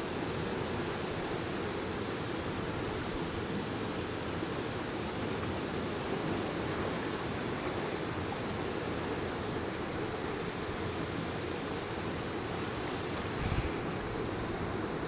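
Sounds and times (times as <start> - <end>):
wind on microphone: 13.2 - 14.5.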